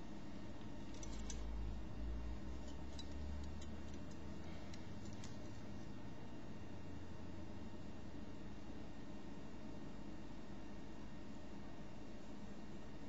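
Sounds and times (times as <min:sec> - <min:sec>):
light clicks of small metal parts: 0:00.6 - 0:06.0.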